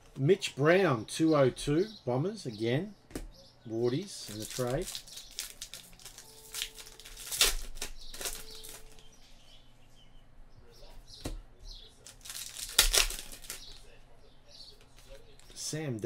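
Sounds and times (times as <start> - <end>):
trading cards rustling and snapping: 4.2 - 9.1, 12.0 - 13.9.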